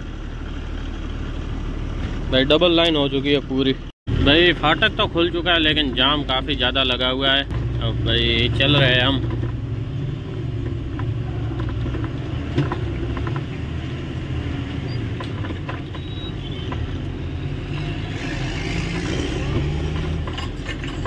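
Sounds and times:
diesel truck engine running: 0.0s - 21.0s
sharp rattles and clicks: 10.6s - 13.6s, 15.0s - 17.0s.

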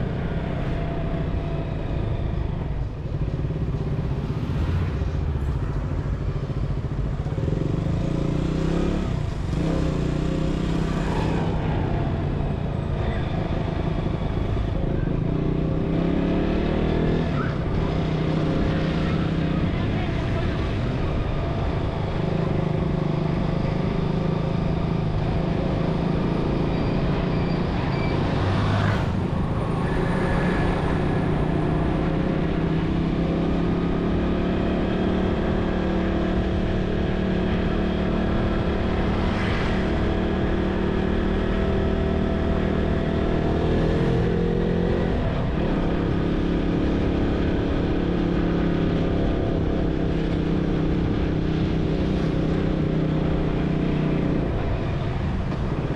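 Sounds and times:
road and wind noise: 0.0s - 55.9s.

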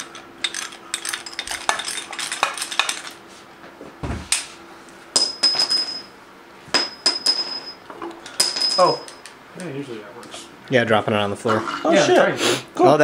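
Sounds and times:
hand tools clattering on metal: 0.0s - 3.2s, 6.8s - 9.4s.

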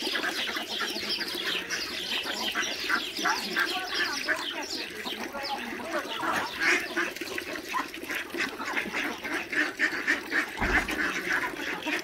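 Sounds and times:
flock of fowl calling: 0.0s - 12.0s
low bump: 10.6s - 11.4s.

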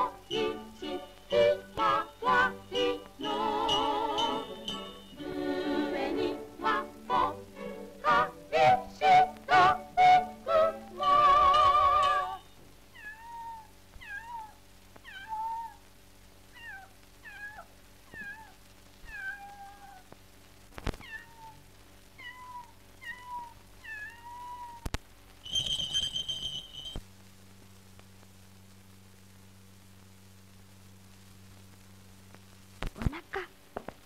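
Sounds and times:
low soundtrack hum: 0.0s - 12.6s
kitten meowing: 13.0s - 15.8s, 16.6s - 20.0s, 21.0s - 21.6s, 22.2s - 25.0s.

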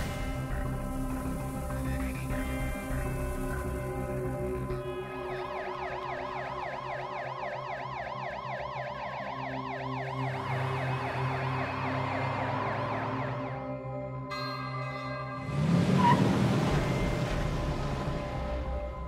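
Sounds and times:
background music drone: 0.0s - 19.0s
police siren yelp: 4.8s - 14.0s.

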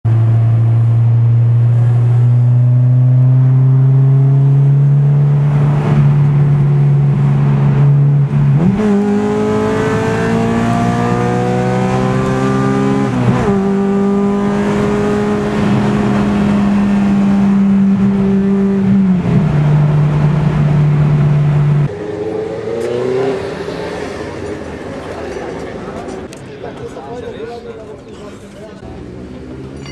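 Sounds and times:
car engine running: 0.1s - 21.9s.

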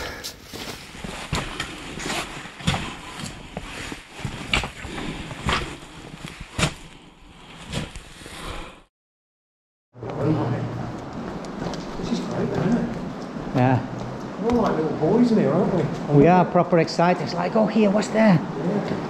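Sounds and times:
footsteps crunching on rubble: 0.3s - 5.7s.

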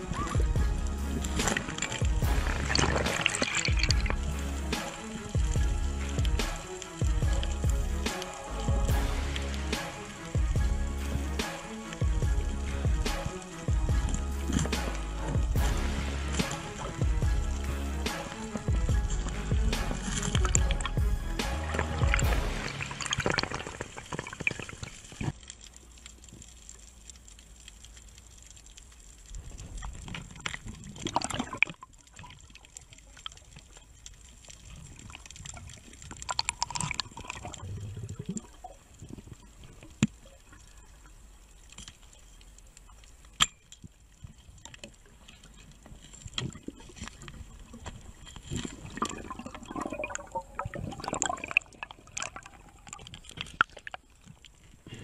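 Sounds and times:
sharp underwater clicks and knocks: 0.0s - 15.7s, 16.3s - 40.6s, 41.6s - 54.7s
muffled underwater noise: 0.0s - 25.3s.

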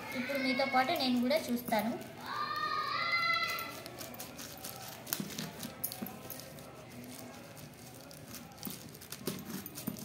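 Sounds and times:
plastic crinkling: 0.4s - 10.0s
scissors cutting plastic bag: 3.3s - 10.0s.

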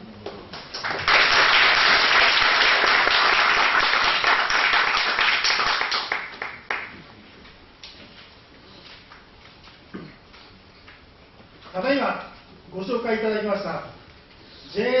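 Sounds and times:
audience applauding: 0.6s - 7.0s.

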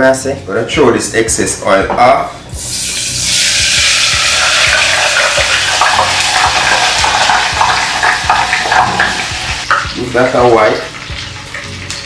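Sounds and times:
hot oil pouring: 2.6s - 12.0s.

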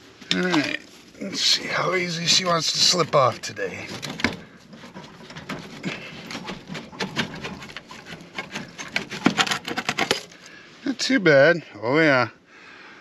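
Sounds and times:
metal pipe scraping and clicking: 3.9s - 10.5s.

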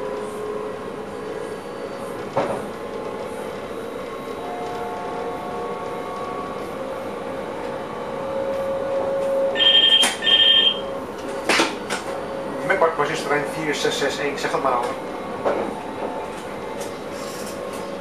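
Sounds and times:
train running hum: 0.0s - 18.0s
two-pitch radio ring tones: 9.6s - 10.9s.

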